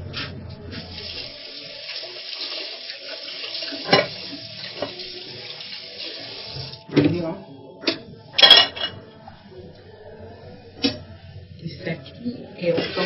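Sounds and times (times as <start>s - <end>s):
utensil or dish clunk: 3.8s - 4.2s, 7.8s - 9.0s
tap running into sink: 3.8s - 5.0s.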